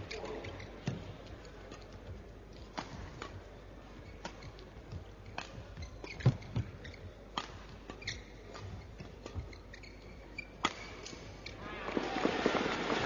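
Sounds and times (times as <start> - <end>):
shoe squeaks on court: 5.8 - 11.6
rackets hitting shuttlecock: 10.6 - 11.3.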